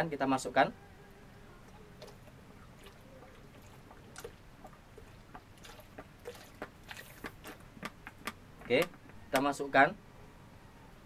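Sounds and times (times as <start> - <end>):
small splutters and clicks: 1.7 - 8.4
sauce pouring into a bowl: 2.0 - 7.6.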